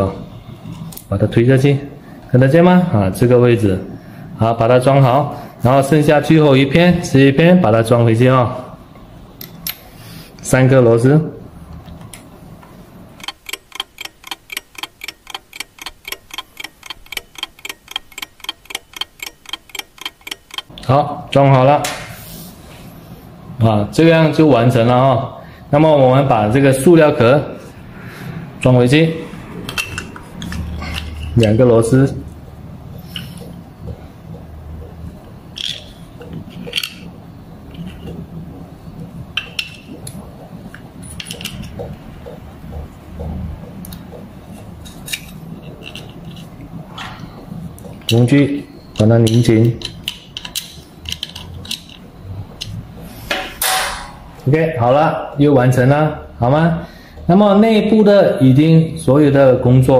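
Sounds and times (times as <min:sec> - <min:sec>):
steady low hum: 0:01.8 - 0:59.1
clock-like ticking: 0:13.2 - 0:20.8.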